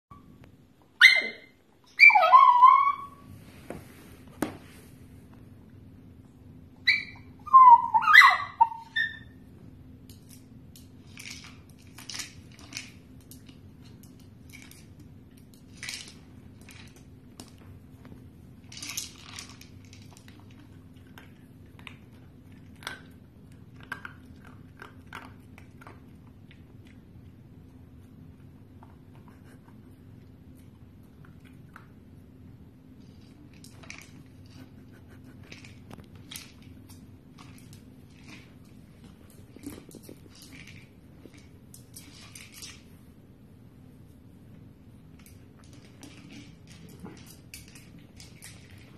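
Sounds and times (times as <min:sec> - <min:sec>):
dog barking high-pitched: 0:01.0 - 0:03.2, 0:06.9 - 0:09.2.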